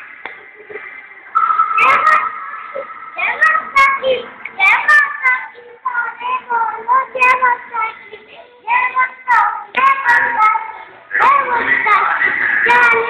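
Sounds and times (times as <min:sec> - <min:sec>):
child singing: 0:03.2 - 0:13.0.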